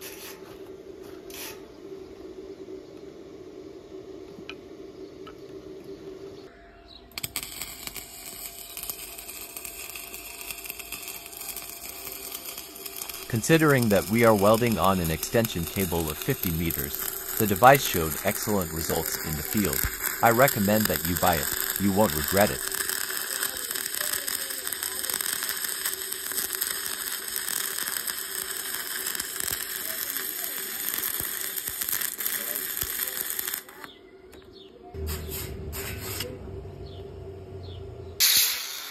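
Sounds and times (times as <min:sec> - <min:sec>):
welding arc crackling: 0:07.1 - 0:34.0, 0:35.0 - 0:36.4, 0:38.2 - 0:38.9.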